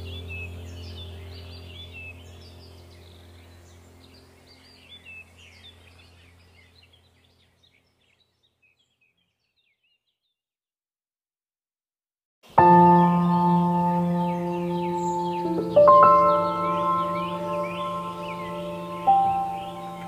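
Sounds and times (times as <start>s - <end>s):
low steady hum: 0.0s - 8.3s, 12.5s - 20.0s
birds chirping: 0.0s - 10.4s, 12.5s - 20.0s.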